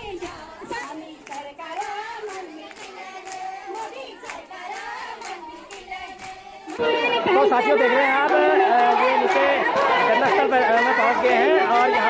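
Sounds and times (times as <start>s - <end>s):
women singing together: 0.0s - 12.0s
hand-clapping: 0.1s - 12.0s.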